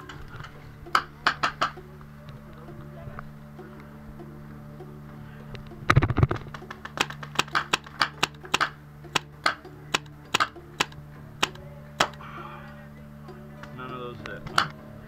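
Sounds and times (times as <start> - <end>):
jumble of pops and knocks: 0.9 - 1.8, 5.9 - 12.2
paintball marker firing pops: 6.9 - 12.2.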